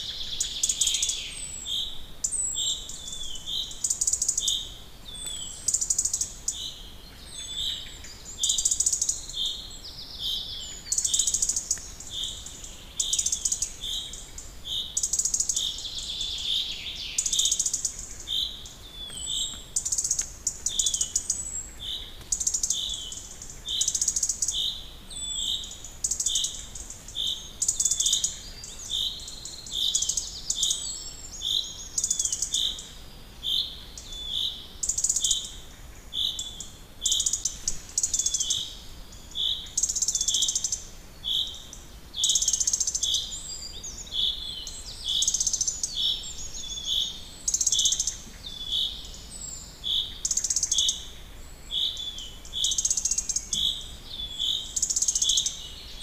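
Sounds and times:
bird harsh hissing calls: 33.6 - 43.4.

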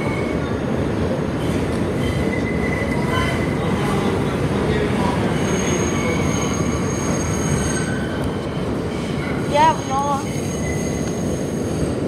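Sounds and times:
subway wheels rumbling on rail: 0.0 - 12.0
high-pitched wheel squeal: 2.0 - 3.6, 5.2 - 8.2, 9.0 - 11.9.

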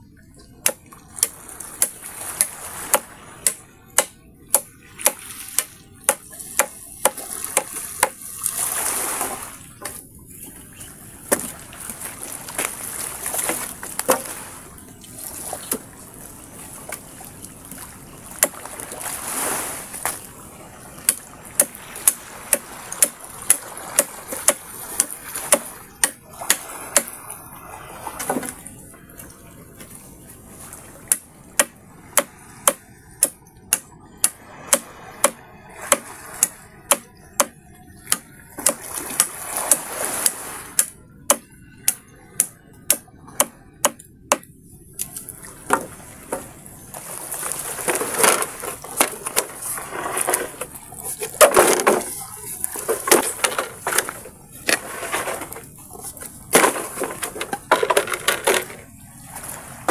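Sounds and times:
small waves washing on shore: 0.0 - 59.9
knife chopping bamboo and wood: 0.6 - 8.2, 11.3 - 11.5, 13.4 - 14.3, 21.0 - 27.2, 31.1 - 44.5, 56.5 - 58.7.

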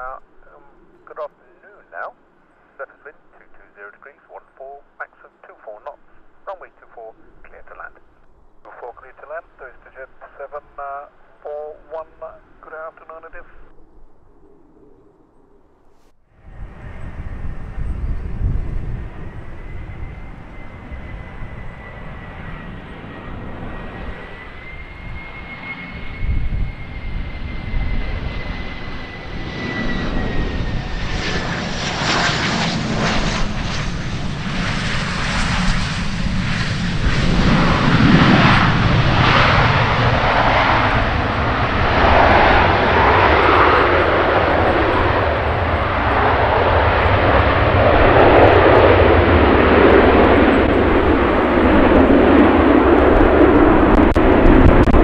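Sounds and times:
broad jet roar: 16.4 - 55.0.

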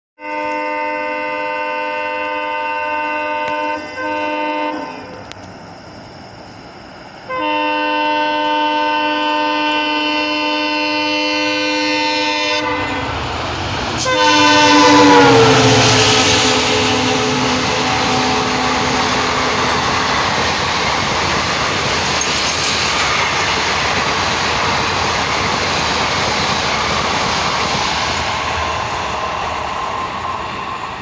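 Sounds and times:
locomotive horn blasts: 0.2 - 5.2, 7.3 - 13.2, 14.0 - 20.1
train rumble: 0.3 - 31.0.

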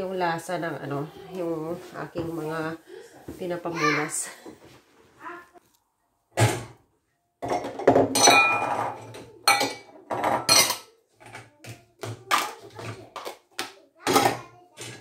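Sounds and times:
dishes knocking and clinking: 6.4 - 6.8, 7.4 - 15.0.

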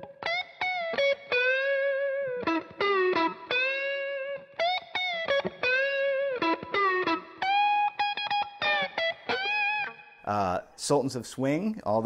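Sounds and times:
electric guitar lead with string bends: 0.0 - 10.5.

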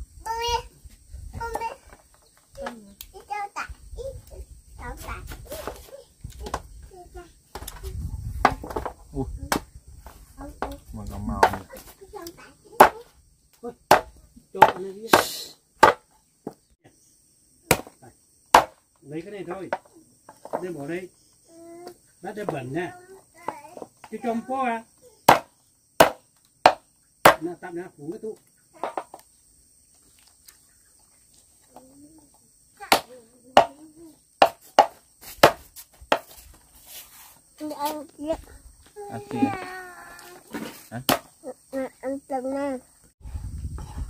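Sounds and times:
hammer striking wood: 13.9 - 16.1, 17.7 - 18.8, 25.3 - 27.5
knife chopping on wooden block: 13.9 - 16.1, 25.3 - 27.4.

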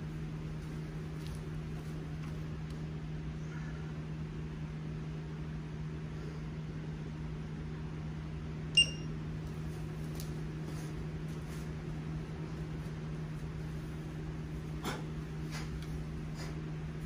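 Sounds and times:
low mechanical hum: 0.0 - 17.0
high-pitched beep: 8.8 - 9.1.

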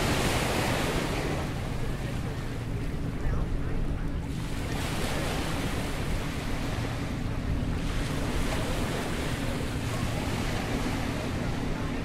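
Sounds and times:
surf breaking on a beach: 0.0 - 12.0.

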